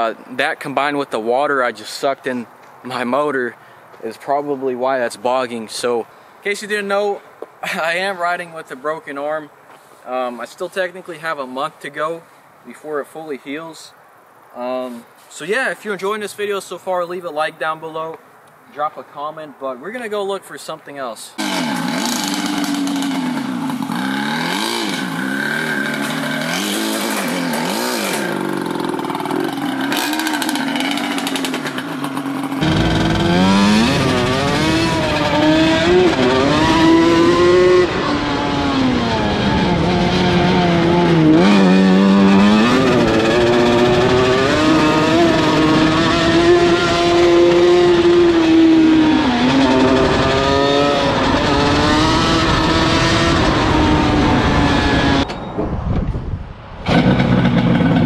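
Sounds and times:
two-stroke engine revving: 21.4 - 55.2, 56.8 - 58.0.

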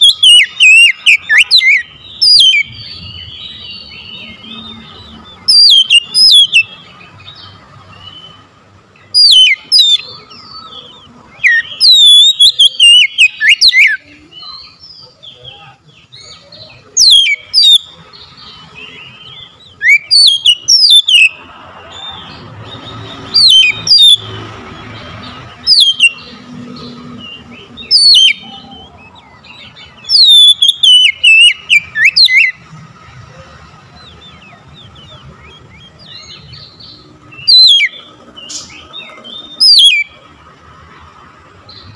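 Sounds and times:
bird singing whistled phrases: 0.0 - 4.6, 5.5 - 6.7, 9.1 - 10.1, 11.4 - 14.7, 15.6 - 17.9, 18.8 - 21.4, 23.2 - 24.2, 25.7 - 26.3, 27.3 - 32.6, 36.1 - 38.8, 39.4 - 40.1.

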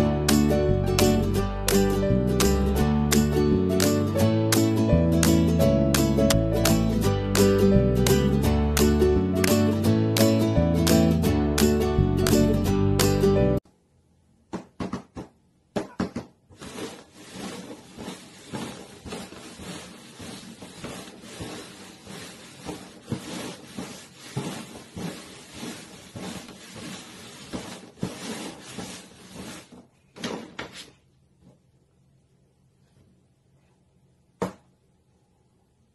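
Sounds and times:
paper cups scraping on cardboard: 16.5 - 29.9.

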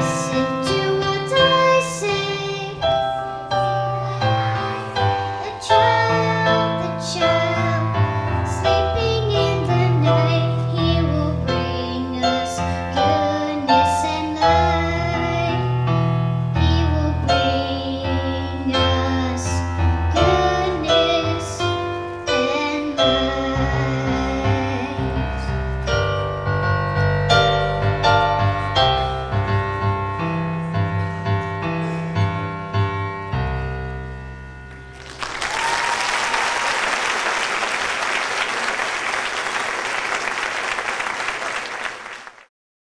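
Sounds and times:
child singing into microphone: 0.0 - 25.6
piano accompaniment: 0.0 - 42.2
audience applause: 35.0 - 42.5.

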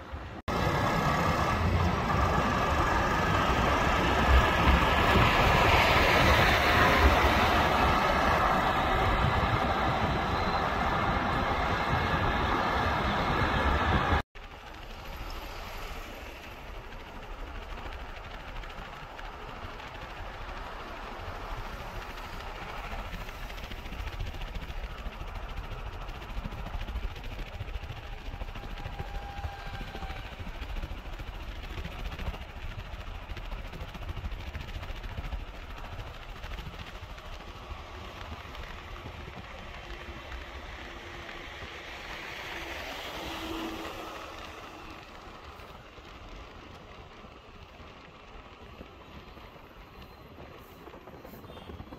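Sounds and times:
tyre and traffic noise: 0.0 - 17.4, 36.8 - 51.9
vehicle engine rumble: 0.0 - 51.9.

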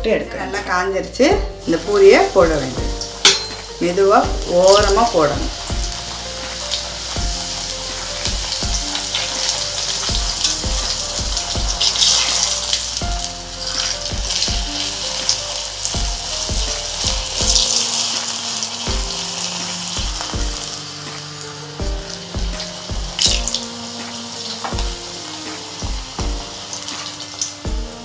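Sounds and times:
hot oil sizzling and crackling: 0.6 - 28.0
background music with a beat: 1.3 - 1.6, 2.4 - 28.0.

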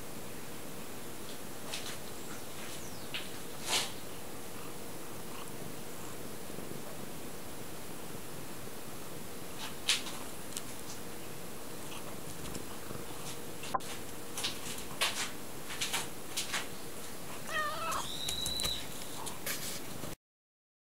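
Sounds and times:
cat meowing: 17.4 - 18.9.

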